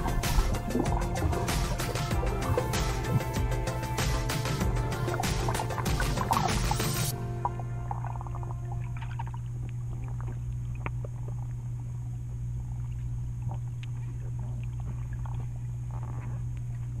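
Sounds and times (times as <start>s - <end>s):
underwater low hum: 0.0s - 17.0s
faint clicks and crackles: 8.8s - 17.0s.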